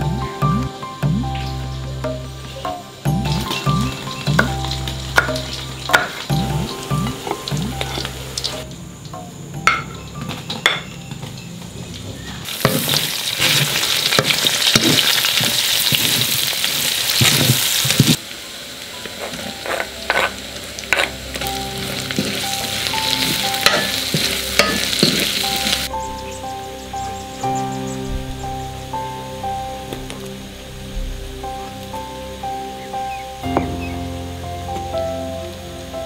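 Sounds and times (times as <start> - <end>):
food sizzling in hot oil: 0.0 - 11.6, 12.2 - 36.0
soft background music: 0.0 - 16.6, 17.3 - 36.0
spatula scraping wok: 2.6 - 8.7, 12.4 - 18.2, 19.0 - 25.9.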